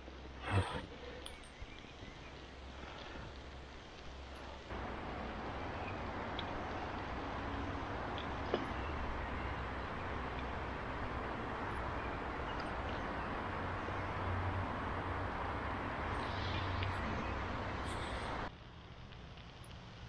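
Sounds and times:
outdoor rushing noise: 0:02.1 - 0:20.0.

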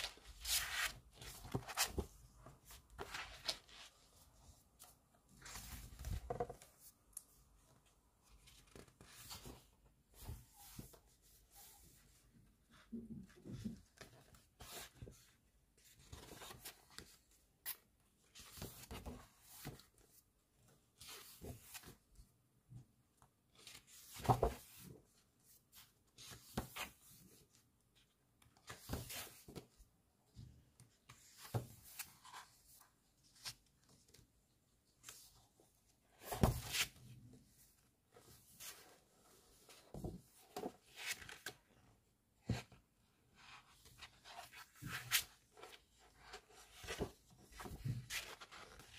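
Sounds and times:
book pages turning: 0:00.0 - 0:04.2, 0:23.6 - 0:24.9, 0:44.0 - 0:48.9.

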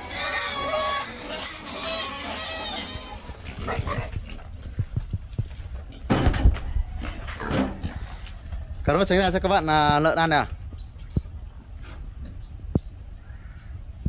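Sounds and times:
young boars squealing: 0:00.0 - 0:04.4
boars crunching feed: 0:00.0 - 0:08.7.

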